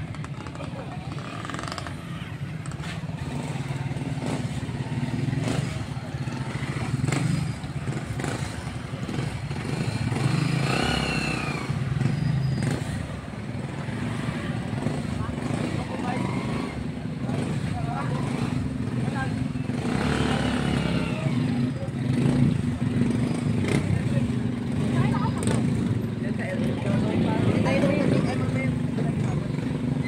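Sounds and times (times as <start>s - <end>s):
motorcycle engines running: 0.0s - 30.0s.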